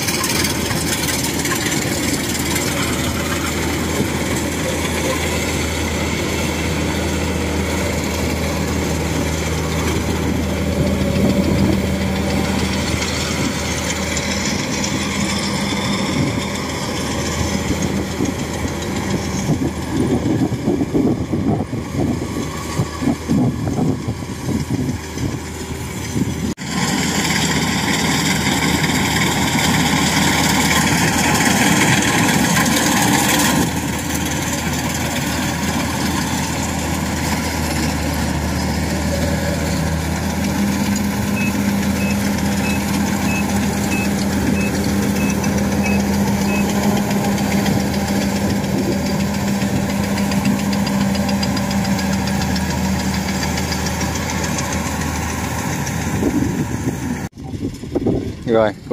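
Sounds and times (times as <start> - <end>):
combine harvester droning: 0.0 - 58.9.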